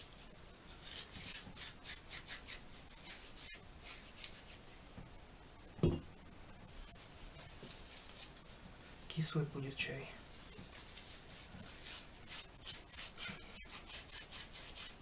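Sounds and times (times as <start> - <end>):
hands rubbing leaves: 0.0 - 4.8, 6.7 - 15.0
dull thump: 5.8 - 6.1.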